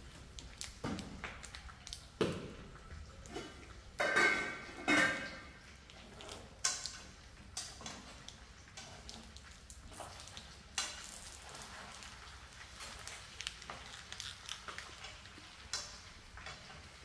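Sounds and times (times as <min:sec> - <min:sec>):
kitchenware clattering: 0:03.3 - 0:05.6.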